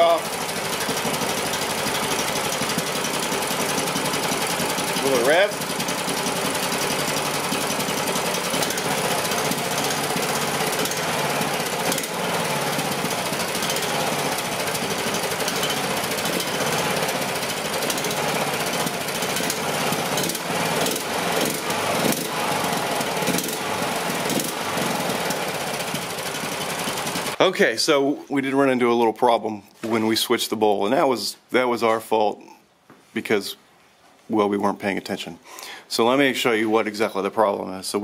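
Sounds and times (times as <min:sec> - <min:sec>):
small engine running: 0:00.0 - 0:27.4.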